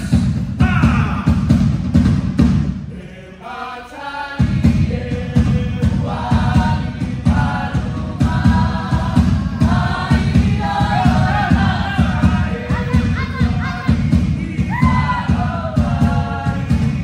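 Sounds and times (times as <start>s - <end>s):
fast drumming: 0.0s - 2.9s, 4.4s - 17.0s
group singing in chorus: 2.8s - 17.0s.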